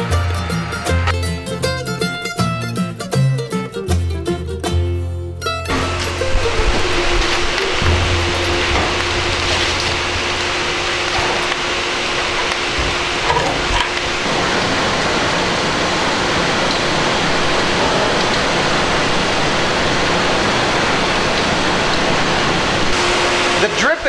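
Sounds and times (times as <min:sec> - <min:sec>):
boiling sap hissing: 0:05.7 - 0:23.9.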